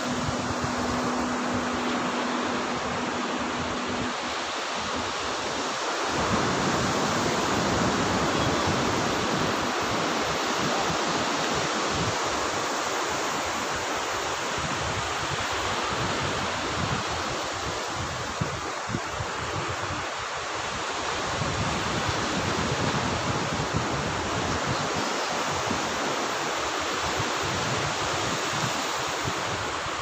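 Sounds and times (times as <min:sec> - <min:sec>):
faint steady hum: 0:00.0 - 0:10.2
surf washing up a beach: 0:00.0 - 0:30.0.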